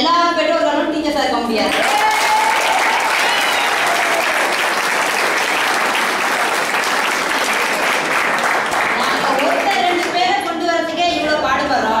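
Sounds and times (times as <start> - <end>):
audience applause: 1.7 - 10.2.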